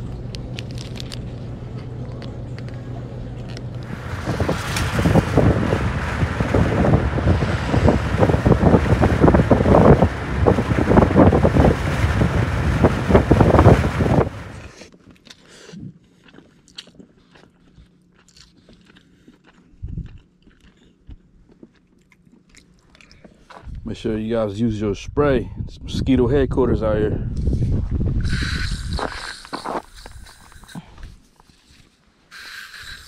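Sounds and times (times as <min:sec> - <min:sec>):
steady low hum: 0:00.0 - 0:33.0
wind buffeting microphone: 0:03.8 - 0:14.7, 0:23.6 - 0:29.3.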